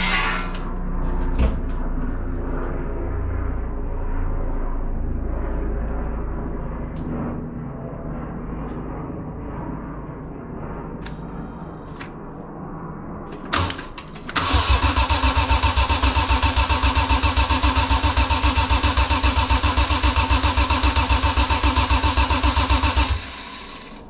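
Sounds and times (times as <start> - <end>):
engine cranking on starter: 13.4 - 24.0.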